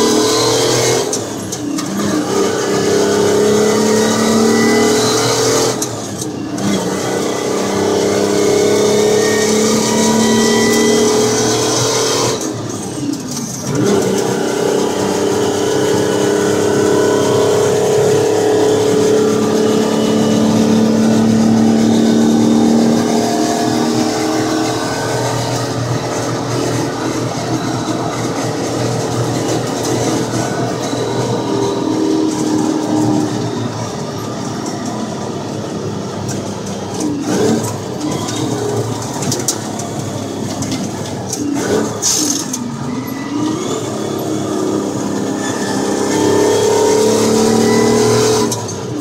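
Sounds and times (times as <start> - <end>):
diesel truck engine pulling: 0.0 - 49.0.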